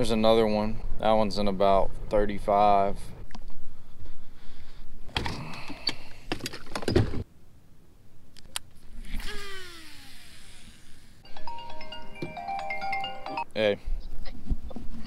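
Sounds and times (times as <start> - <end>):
fishing reel spool whining: 9.0 - 11.2.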